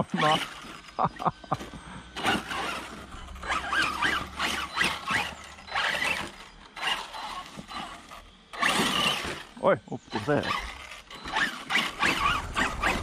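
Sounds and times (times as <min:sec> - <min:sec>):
rc truck electric motor whining: 0:00.0 - 0:13.0.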